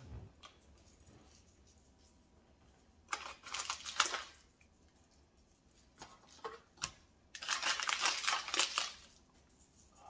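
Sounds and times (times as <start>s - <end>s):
spice shaker shaking: 7.4s - 10.0s.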